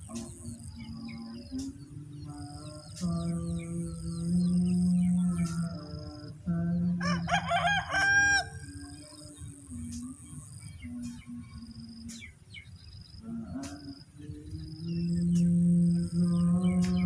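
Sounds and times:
low drawn-out steady tones: 0.0 - 17.0
rooster crowing: 7.0 - 9.2.

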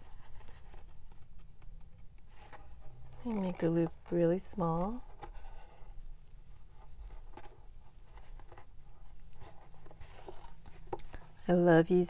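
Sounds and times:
paper and card rubbing: 0.0 - 4.2, 6.8 - 11.0.

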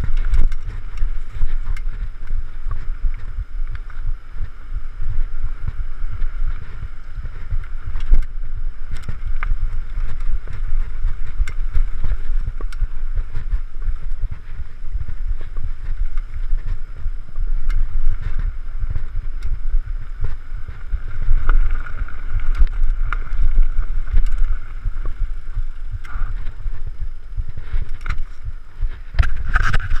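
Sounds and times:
bike clicking and rattling: 0.0 - 30.0
wind buffeting microphone: 0.0 - 30.0.

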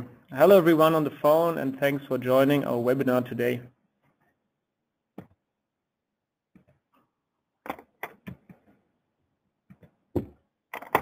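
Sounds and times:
sharp clicks and knocks: 7.6 - 8.7, 9.7 - 11.0.

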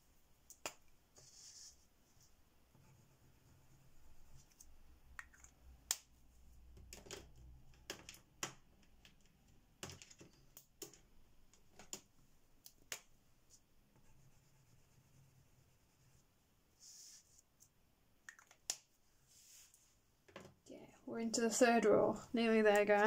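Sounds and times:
plastic crayons clicking: 6.8 - 13.1.

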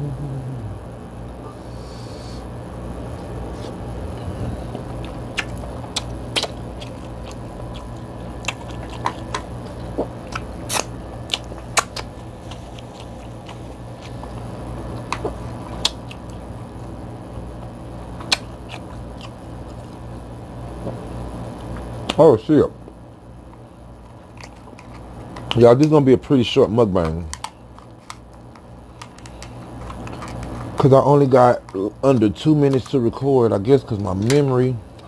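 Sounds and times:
steady low hum: 0.0 - 35.0
crab shell cracking: 4.8 - 14.3, 18.2 - 19.4, 24.0 - 25.6.

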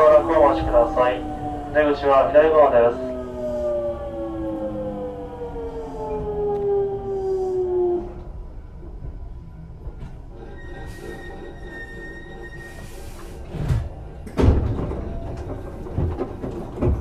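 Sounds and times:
low running rumble: 0.0 - 10.3.

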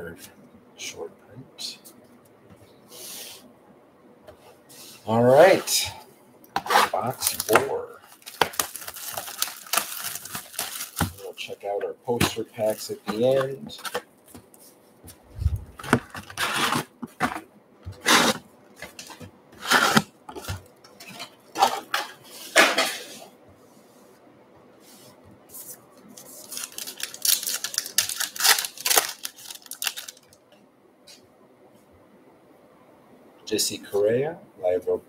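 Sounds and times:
card packs rustling and clicking: 6.6 - 11.5, 12.1 - 14.6, 15.6 - 22.2, 26.1 - 30.4
foil wrapper tearing and crinkling: 6.8 - 11.3, 15.8 - 17.4, 26.4 - 30.4.

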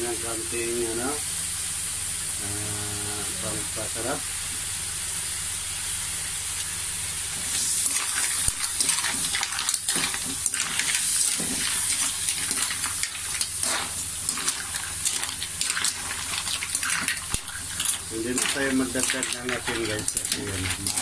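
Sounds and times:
mussels sizzling in a pan: 0.0 - 21.0.

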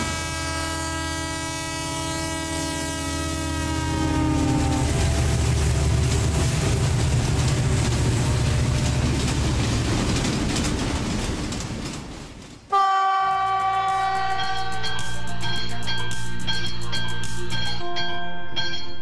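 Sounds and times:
train horn: 0.0 - 6.0, 12.7 - 14.9
train wheels clattering on rails: 4.1 - 12.7
short musical jingle: 13.4 - 19.0.

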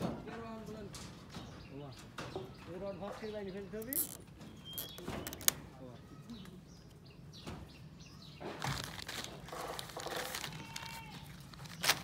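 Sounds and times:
plastic packet crinkling: 8.6 - 12.0.

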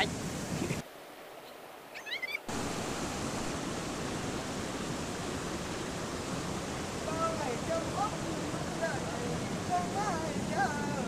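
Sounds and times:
steady rushing noise: 2.5 - 11.0.

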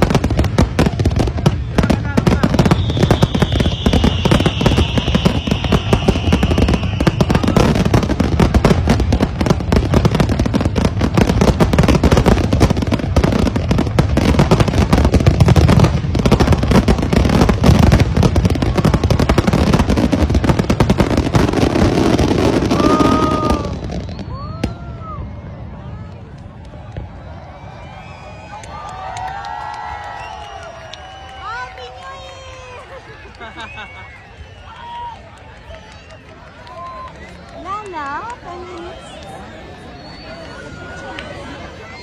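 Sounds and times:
fireworks bangs and crackling: 0.0 - 42.0
high firework whistle: 1.5 - 8.6, 21.2 - 25.2, 33.5 - 36.4, 38.5 - 42.0.

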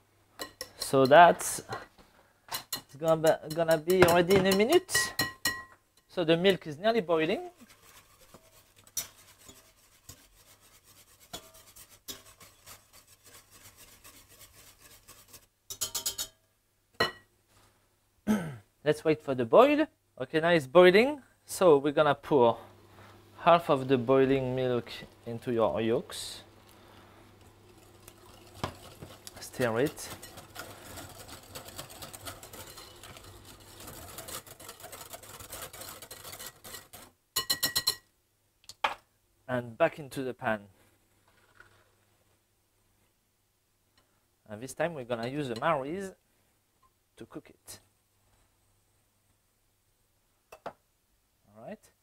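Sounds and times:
whisk scraping metal saucepan: 2.6 - 5.4, 7.2 - 16.3, 27.6 - 38.0.

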